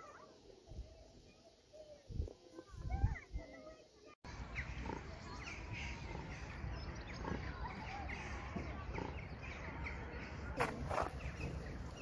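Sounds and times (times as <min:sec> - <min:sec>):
small birds chirping: 0:00.0 - 0:12.0
wind rumble on microphone: 0:02.1 - 0:03.3.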